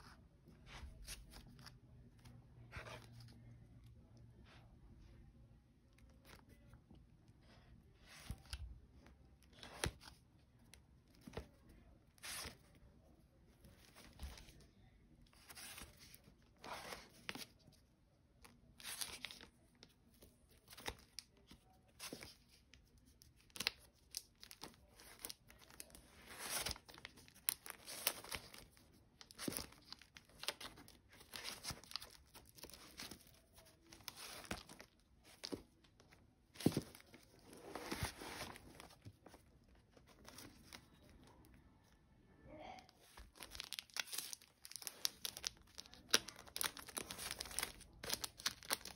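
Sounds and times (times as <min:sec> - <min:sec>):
record sleeves flipping: 0:12.2 - 0:12.6, 0:23.4 - 0:41.0.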